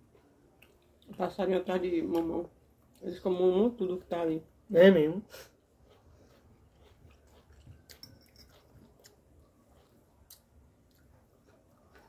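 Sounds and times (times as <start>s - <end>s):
faint chewing: 0.0s - 1.4s, 5.3s - 12.0s.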